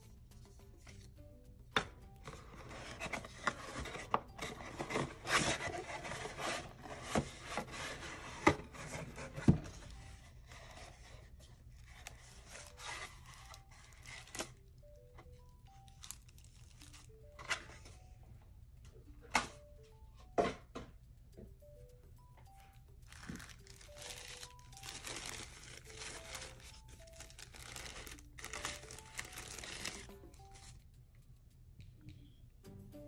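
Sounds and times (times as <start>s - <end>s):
plastic wrapping rustling: 2.2s - 14.6s, 15.2s - 18.0s, 23.1s - 30.8s
cardboard rubbing and scraping: 2.6s - 9.8s.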